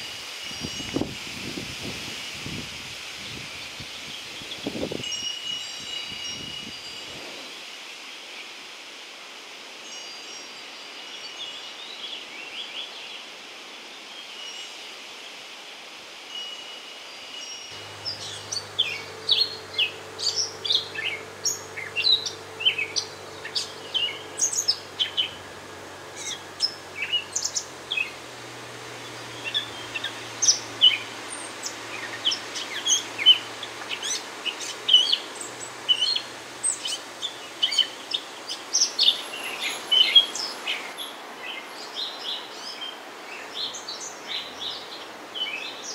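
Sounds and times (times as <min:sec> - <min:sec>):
wind chime tones: 0:05.0 - 0:07.3
songbirds chirping: 0:16.4 - 0:45.9
faint low hum: 0:17.8 - 0:37.9.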